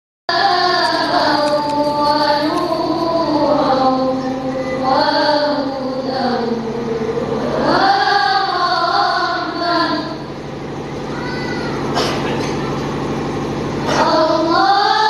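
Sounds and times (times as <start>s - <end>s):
girls choir singing: 0.3s - 10.4s, 13.8s - 15.0s.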